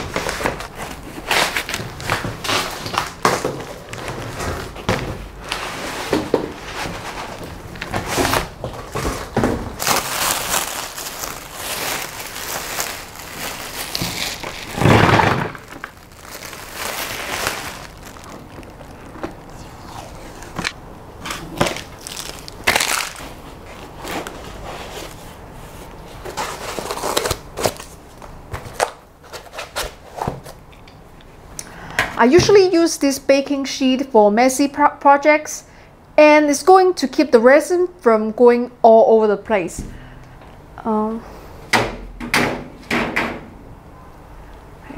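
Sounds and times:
plastic bag crinkling: 0:07.1 - 0:20.8, 0:21.4 - 0:24.4.

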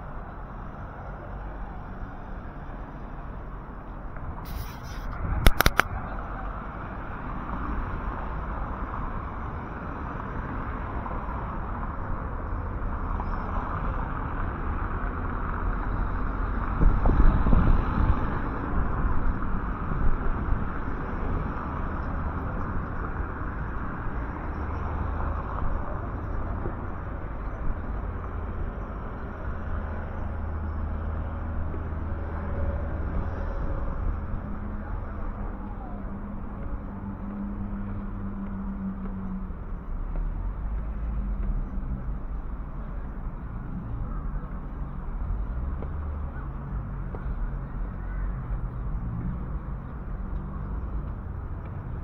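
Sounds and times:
traffic noise: 0:00.0 - 0:52.0.

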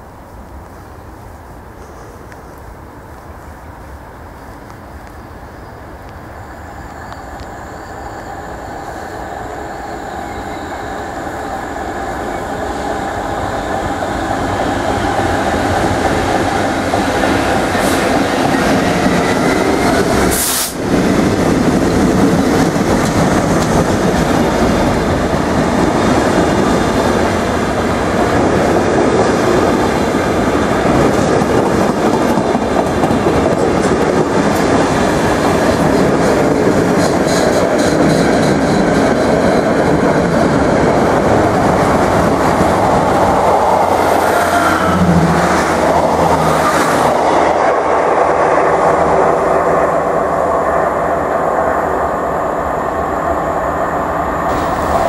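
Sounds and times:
freight train rumbling past: 0:00.0 - 0:55.0.

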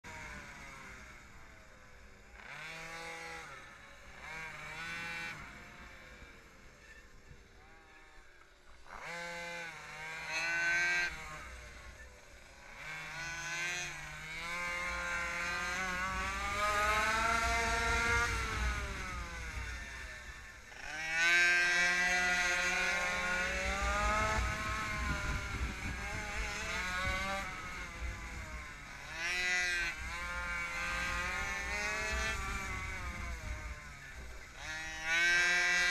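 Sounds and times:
small motorbike engine revving: 0:00.0 - 0:35.9
low wind rumble on microphone: 0:14.3 - 0:20.5, 0:21.4 - 0:35.9.

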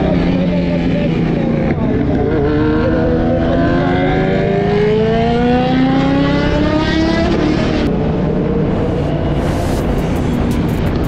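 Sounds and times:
wind and road noise: 0:00.0 - 0:11.0
motorcycle engine running: 0:09.6 - 0:11.0.

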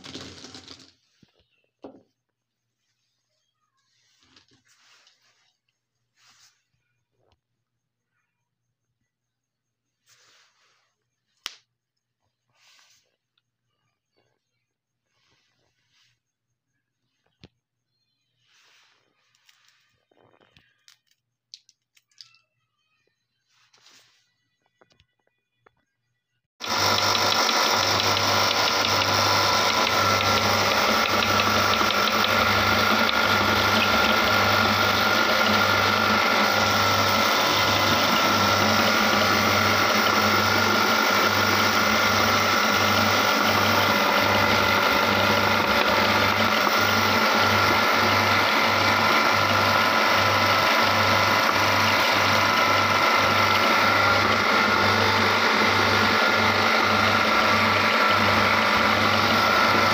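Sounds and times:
meat grinder running: 0:00.0 - 0:00.9, 0:26.6 - 0:59.9.

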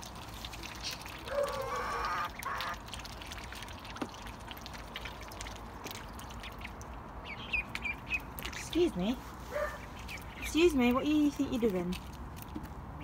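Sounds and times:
ducks calling harshly: 0:01.3 - 0:02.8.

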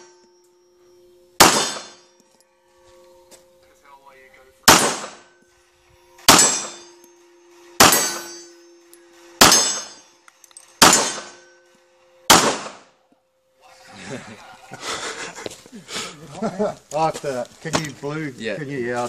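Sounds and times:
pistol shots: 0:01.4 - 0:02.0, 0:04.6 - 0:05.3, 0:06.3 - 0:06.8, 0:07.8 - 0:08.4, 0:09.4 - 0:10.0, 0:10.8 - 0:11.4, 0:12.3 - 0:12.9.

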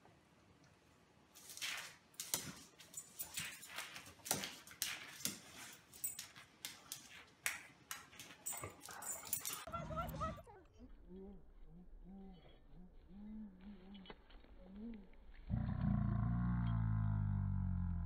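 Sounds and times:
dog scuffling on tile floor: 0:01.3 - 0:09.7.

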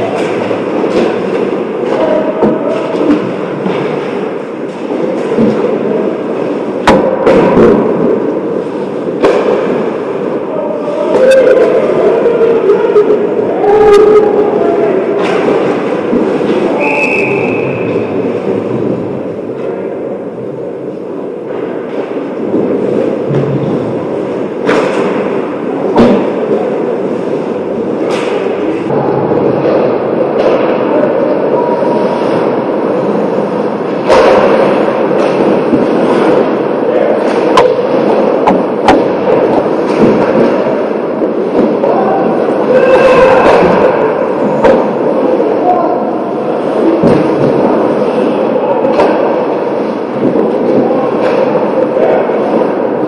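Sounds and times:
arena noise: 0:00.0 - 0:53.0
hockey sticks working puck: 0:00.0 - 0:53.0
skates scraping ice: 0:31.8 - 0:45.8.

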